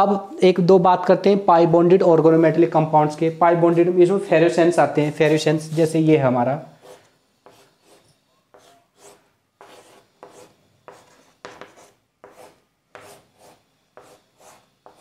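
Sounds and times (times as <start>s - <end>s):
chalk scratching on blackboard: 6.8s - 15.0s.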